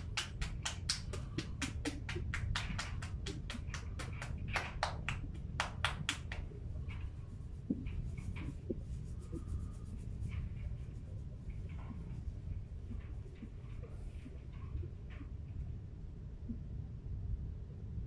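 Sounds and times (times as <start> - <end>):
hands patting head rapidly: 0.0 - 14.4
faint rubbing: 0.0 - 15.7.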